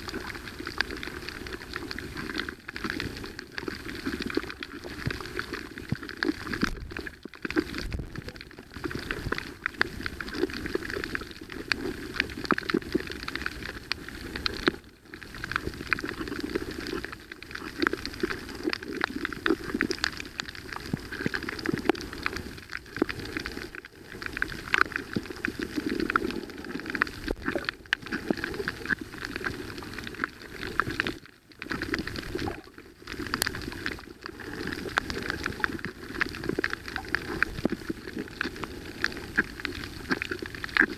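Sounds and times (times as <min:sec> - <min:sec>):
underwater crackle of clicks: 0:00.0 - 0:40.9
underwater rushing noise: 0:00.0 - 0:40.9.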